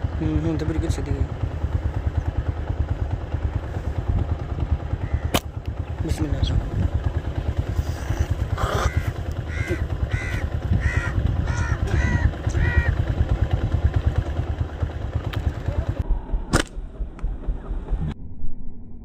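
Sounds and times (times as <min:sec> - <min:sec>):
steady low rumble: 0:00.0 - 0:19.0
bird calling: 0:04.9 - 0:05.4, 0:07.7 - 0:13.1.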